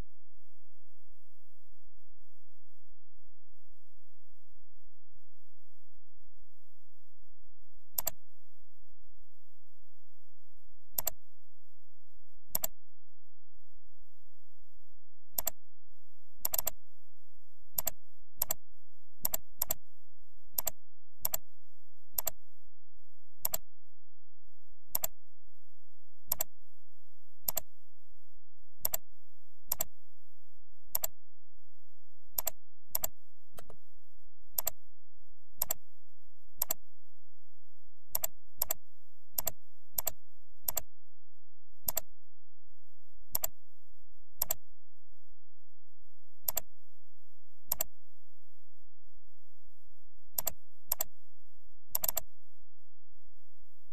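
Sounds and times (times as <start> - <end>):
computer mouse clicking: 8.0 - 8.2, 11.0 - 11.2, 12.5 - 12.8, 15.4 - 15.6, 16.4 - 16.8, 17.8 - 18.6, 19.2 - 19.8, 20.6 - 21.4, 22.2 - 22.4, 23.4 - 23.6, 24.9 - 25.2, 26.3 - 26.5, 27.4 - 27.7, 28.8 - 29.0, 29.7 - 29.9, 30.9 - 31.2, 32.4 - 33.8, 34.6 - 34.8, 35.6 - 35.8, 36.6 - 36.8, 38.1 - 38.8, 39.4 - 40.9, 41.9 - 42.1, 43.3 - 43.6, 44.4 - 44.6, 46.5 - 46.7, 47.7 - 47.9, 50.4 - 51.1, 51.9 - 52.3.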